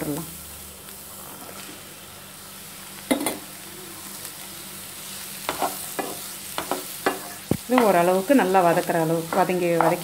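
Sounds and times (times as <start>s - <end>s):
vegetables sizzling in frying pan: 0.0s - 10.0s
spatula knocking against pan: 9.3s - 10.0s.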